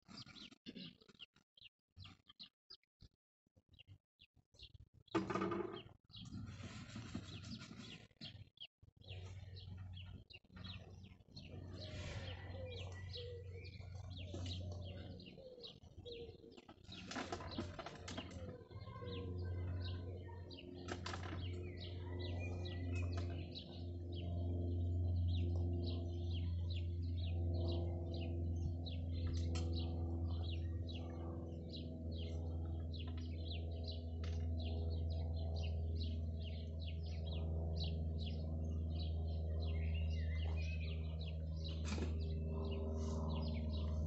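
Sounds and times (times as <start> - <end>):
birds chirping and twittering: 0.0 - 44.0
low steady hum: 9.0 - 44.0.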